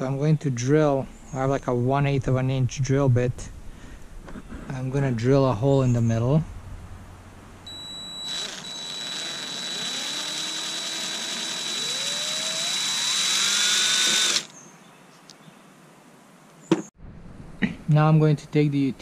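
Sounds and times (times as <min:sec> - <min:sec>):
cordless drill whining: 0:07.7 - 0:14.5.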